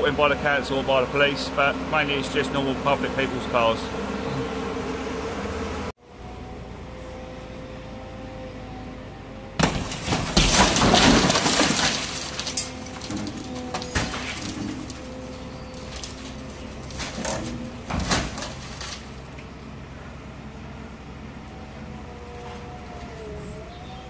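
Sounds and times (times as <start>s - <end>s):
glass breaking: 9.6s - 19.1s
metal buckling and crunching: 9.6s - 19.6s.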